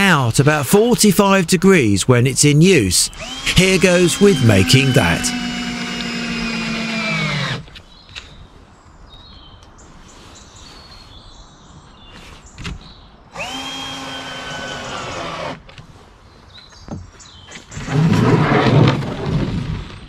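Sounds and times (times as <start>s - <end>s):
cordless drill motor running: 3.1s - 7.7s, 13.3s - 15.6s.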